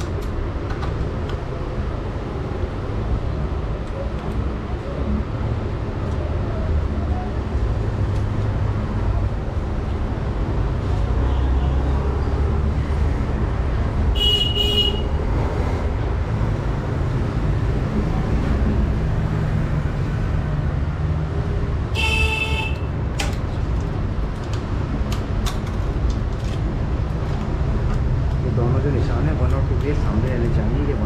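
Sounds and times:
traffic rumble: 0.0s - 31.0s
vehicle horn toots: 14.2s - 15.2s, 21.9s - 22.9s.

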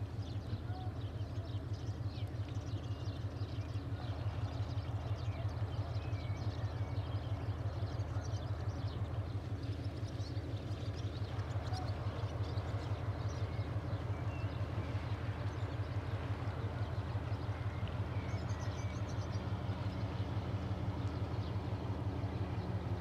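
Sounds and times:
boat engine throbbing: 0.0s - 23.0s
small birds chirping: 0.0s - 23.0s.

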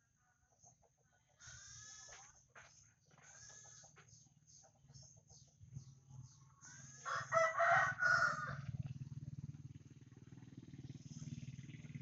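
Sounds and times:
low steady rumble: 3.3s - 12.0s
rooster crowing: 6.6s - 8.8s.

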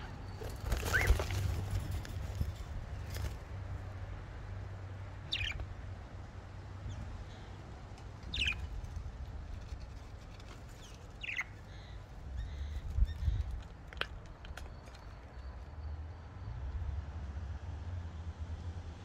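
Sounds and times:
budgerigar chirps: 5.3s - 5.6s.

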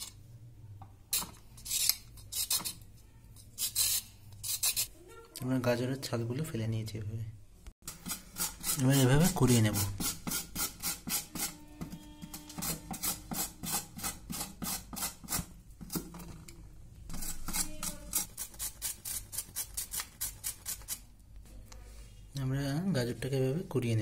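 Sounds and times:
carrot grated on grater: 7.9s - 11.6s, 17.1s - 21.0s.

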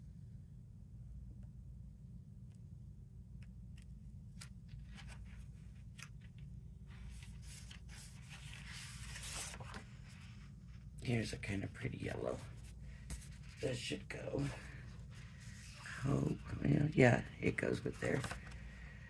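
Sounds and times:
paper rustling: 4.4s - 11.0s, 12.2s - 16.6s, 17.5s - 18.7s.

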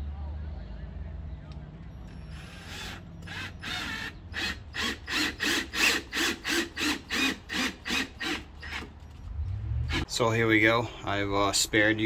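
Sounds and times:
cordless drill ratcheting into wood: 2.1s - 9.0s.

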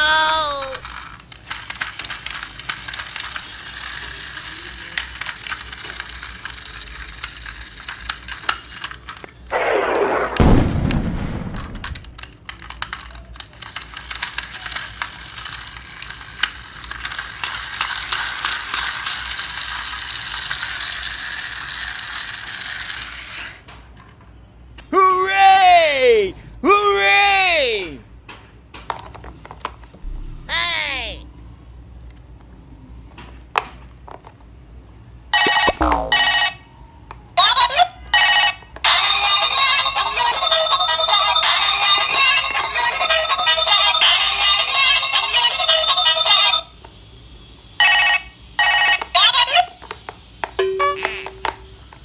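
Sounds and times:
toy wheels clicking and whirring: 0.0s - 9.5s, 11.8s - 24.2s, 38.2s - 52.0s
loud falling sweep: 9.5s - 11.9s.

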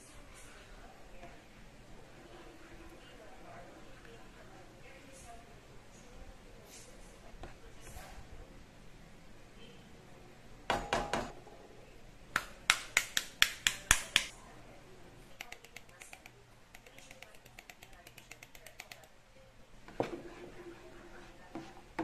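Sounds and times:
spoon stirring sauce: 15.4s - 19.2s, 19.8s - 22.0s.

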